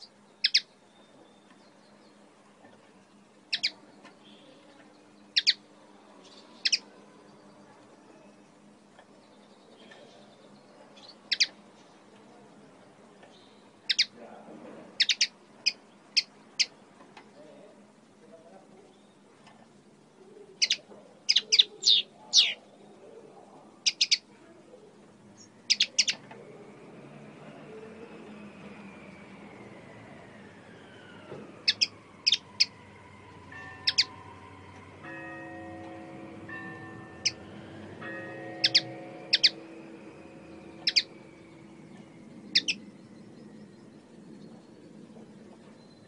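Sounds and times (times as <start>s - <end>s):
linnet chirping: 0.0s - 2.2s, 3.5s - 4.6s, 5.2s - 5.6s, 6.2s - 7.0s, 10.2s - 11.6s, 13.4s - 14.2s, 15.0s - 16.8s, 20.4s - 22.7s, 23.8s - 24.3s, 25.4s - 26.2s, 28.1s - 34.8s, 37.2s - 46.0s.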